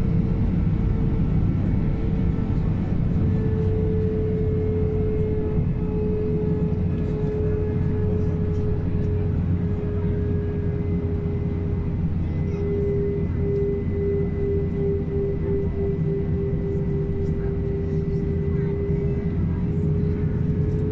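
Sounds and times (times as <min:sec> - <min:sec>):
low engine rumble: 0:00.0 - 0:20.9
held whining tone: 0:01.9 - 0:20.9.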